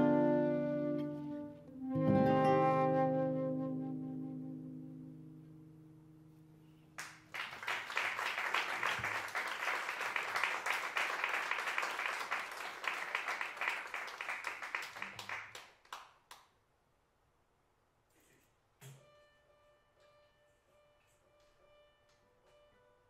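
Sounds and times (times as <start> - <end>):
audience applauding: 7.0 - 16.4.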